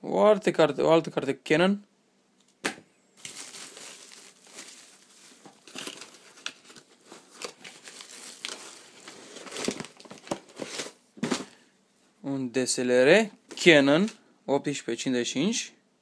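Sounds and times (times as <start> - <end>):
packing paper and bubble wrap rustling: 3.2 - 11.6.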